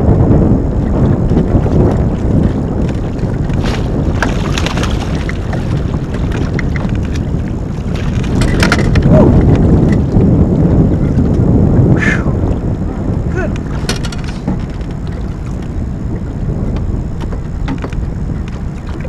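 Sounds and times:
wind buffeting microphone: 0:00.0 - 0:19.0
fishing tackle clicks and rattles: 0:08.2 - 0:10.1, 0:13.8 - 0:14.8.

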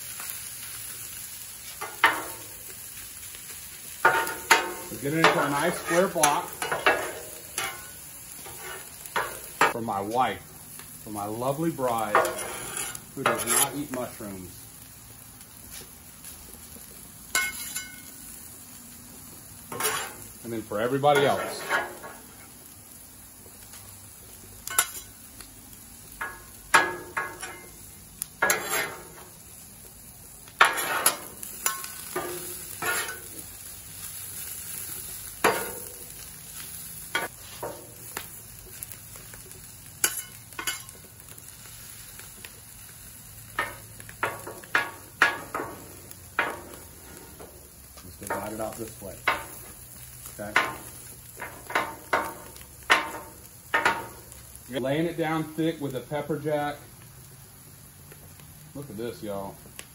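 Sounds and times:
food sizzling on griddle: 0:00.0 - 0:59.9
metal spatulas scraping on griddle: 0:01.7 - 0:02.6, 0:04.0 - 0:09.8, 0:11.9 - 0:14.1, 0:17.3 - 0:18.1, 0:19.6 - 0:22.6, 0:24.6 - 0:25.2, 0:26.2 - 0:29.4, 0:30.6 - 0:33.5, 0:34.1 - 0:38.2, 0:40.0 - 0:41.0, 0:43.6 - 0:47.6, 0:50.4 - 0:54.3.

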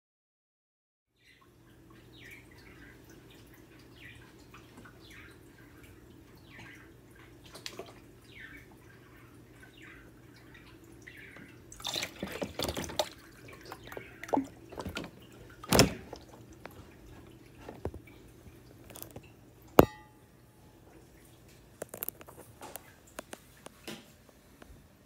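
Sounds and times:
water sloshing and dripping: 0:01.2 - 0:24.4
plastic knocks and handling: 0:13.8 - 0:18.1
sharp ringing clack: 0:19.8 - 0:20.3.

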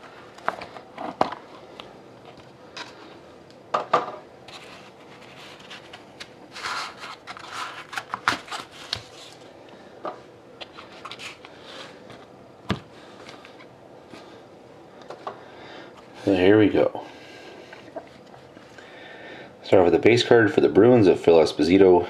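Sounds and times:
cardboard scraping and rubbing: 0:04.5 - 0:09.4.

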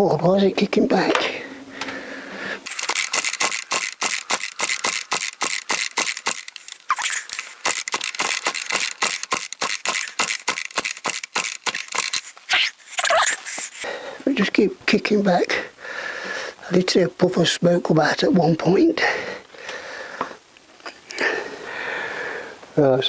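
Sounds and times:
chainsaw engine kicking back: 0:02.7 - 0:12.5
chainsaw recoil starter clicking: 0:02.7 - 0:12.5.

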